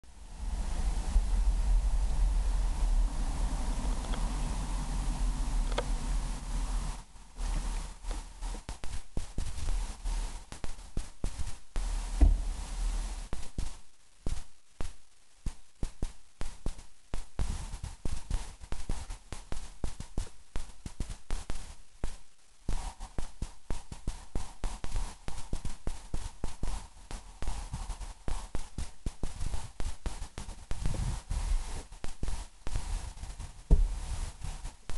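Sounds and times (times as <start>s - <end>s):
low rumble bursts: 0.1s - 8.7s, 11.8s - 13.3s
rapid tapping and crackling: 0.4s - 34.9s.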